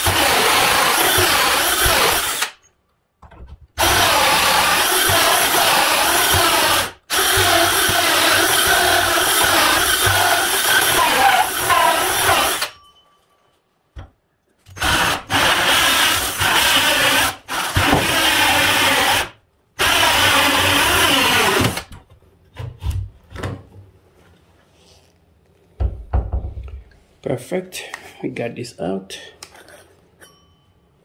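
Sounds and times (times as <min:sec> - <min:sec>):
electric drill boring into wood: 0:00.0 - 0:02.6, 0:03.8 - 0:12.7, 0:14.8 - 0:21.9.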